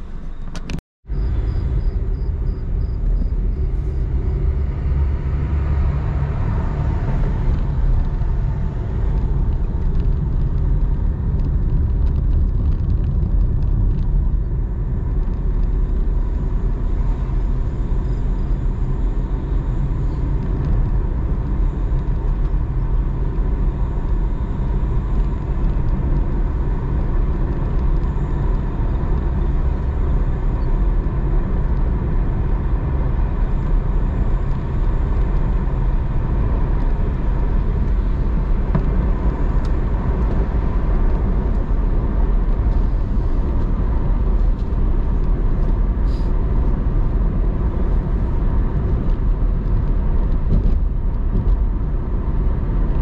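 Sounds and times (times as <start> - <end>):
car engine and road noise: 0.0 - 53.0.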